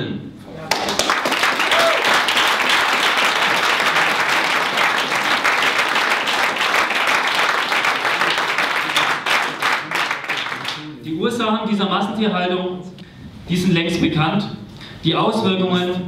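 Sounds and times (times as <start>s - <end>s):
audience applauding: 0.7s - 10.9s.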